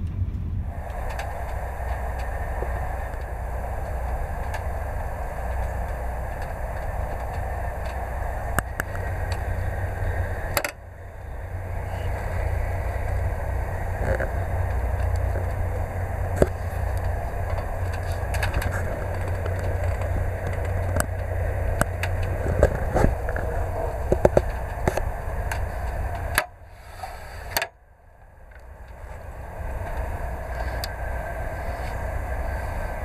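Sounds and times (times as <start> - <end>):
train carriage rumble: 0.0 - 33.0.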